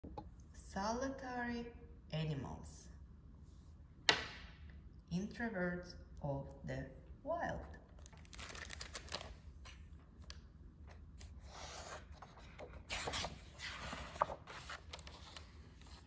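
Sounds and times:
book pages turning: 8.0 - 16.0.

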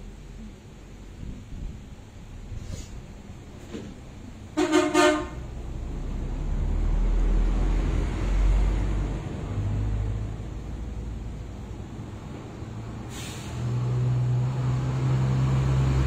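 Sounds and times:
vehicle horn toots: 4.5 - 5.4
vehicle engine passing by: 5.4 - 16.0.

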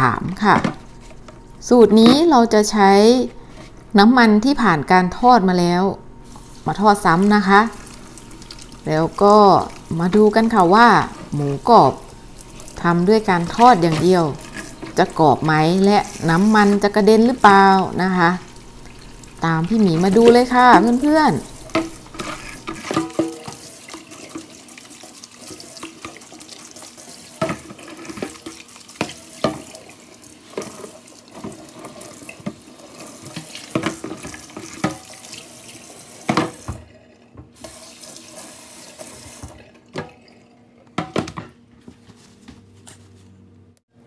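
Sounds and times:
water splashes: 6.3 - 36.8.

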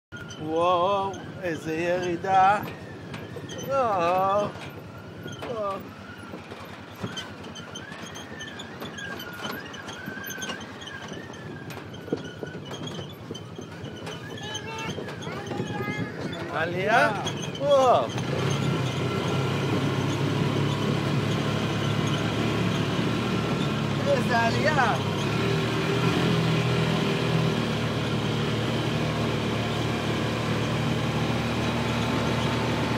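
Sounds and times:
buggy engine whine: 0.1 - 32.9
road and wind noise: 0.1 - 32.9
rumbling and rattling: 0.1 - 32.9.

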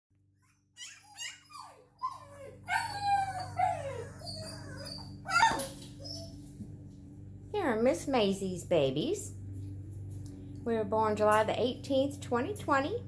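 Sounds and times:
puppies whimpering and crying: 0.4 - 6.5.

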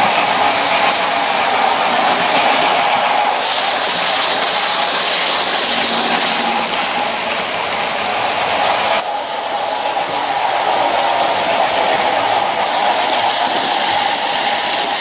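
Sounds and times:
model train wheel rumble: 0.0 - 8.4, 9.9 - 15.0
electric motor whirring: 1.2 - 2.6, 3.2 - 7.4, 11.8 - 15.0.

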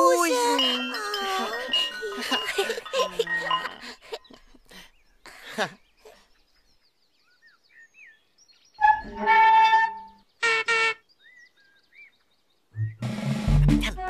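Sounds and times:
birds chirping softly: 0.2 - 13.0.

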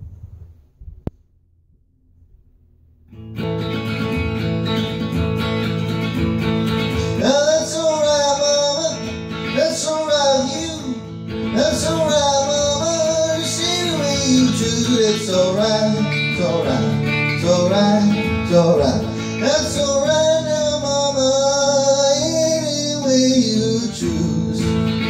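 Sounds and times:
electric guitar strumming rockabilly: 3.1 - 25.0
man singing: 7.0 - 25.0.

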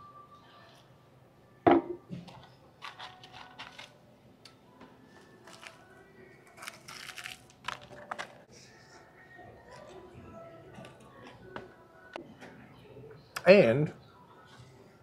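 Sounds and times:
bottle knocking on table: 1.7 - 2.0
crunching chewing of fried chicken: 5.3 - 8.4.

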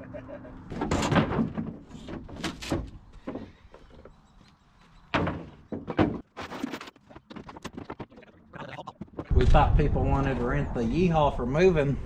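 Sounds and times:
boards knocking and clattering: 0.7 - 3.9, 5.1 - 8.4.

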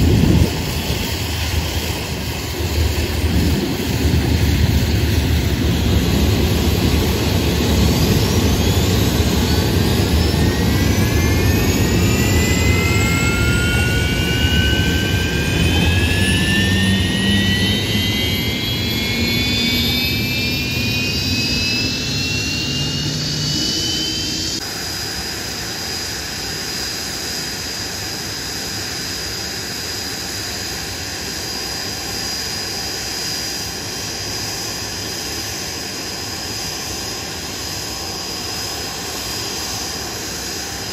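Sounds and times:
high-pitched jet whine: 0.0 - 40.9
jet engine spooling up: 0.0 - 40.9.

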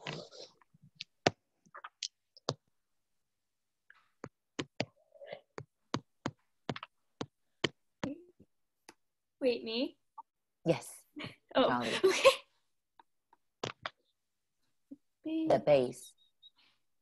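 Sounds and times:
sharp clicks and taps: 5.6 - 8.2.

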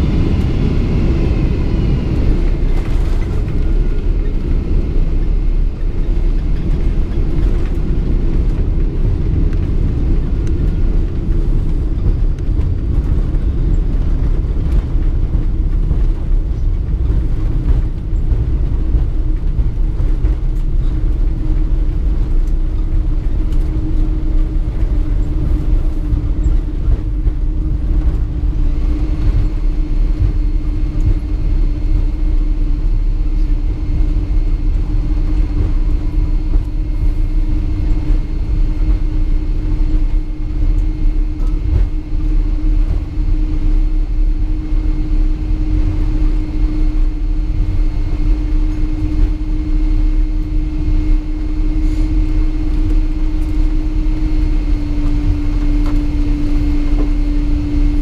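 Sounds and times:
airplane cabin low rumble: 0.0 - 58.0.

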